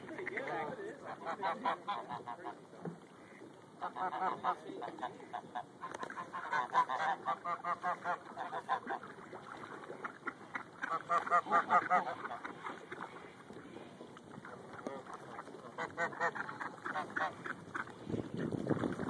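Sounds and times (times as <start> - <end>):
geese honking: 0.0 - 2.6, 3.2 - 9.2, 9.9 - 13.0, 15.7 - 17.9.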